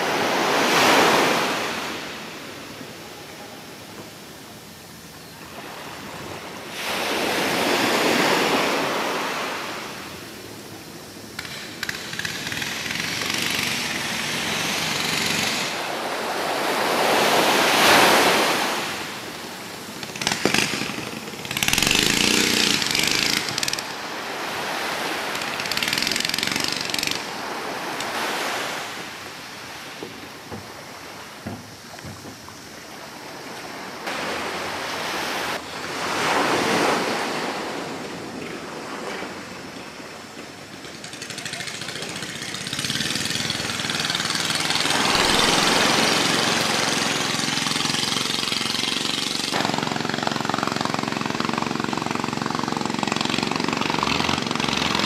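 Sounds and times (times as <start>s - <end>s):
small waves washing onto sand: 0.0s - 55.0s.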